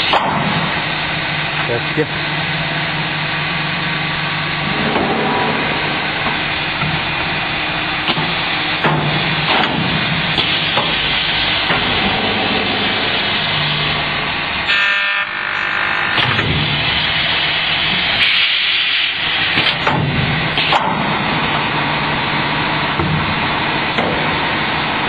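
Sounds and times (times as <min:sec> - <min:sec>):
machine running: 0:00.0 - 0:25.0
short buzz: 0:14.6 - 0:16.3.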